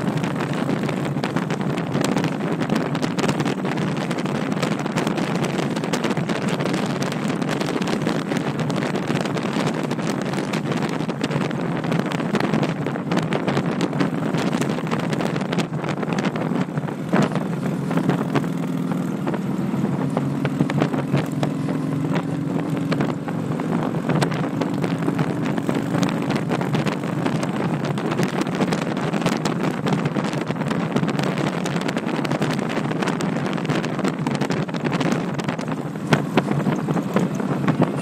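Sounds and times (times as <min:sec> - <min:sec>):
motorcycle engine running: 0:00.0 - 0:38.0
wind noise on microphone: 0:00.0 - 0:38.0.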